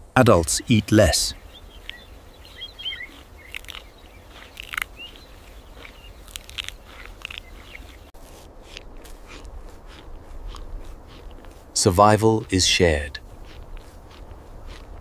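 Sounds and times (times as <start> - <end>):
low outdoor rumble: 0.0 - 15.0
faint bird chirps: 1.0 - 8.1
crunchy food chewing: 1.4 - 11.8, 12.4 - 15.0.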